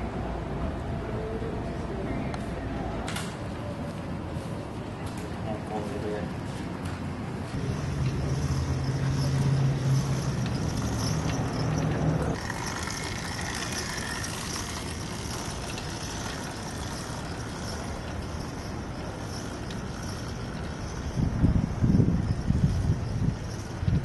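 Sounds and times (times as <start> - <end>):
low engine hum: 6.7 - 24.0
faint wavering high whine: 12.4 - 24.0.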